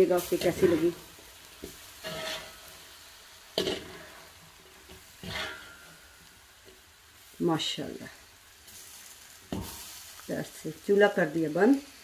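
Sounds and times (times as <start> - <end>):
meat sizzling: 0.0 - 12.0
spatula scraping metal pot: 1.6 - 2.6, 5.2 - 5.9.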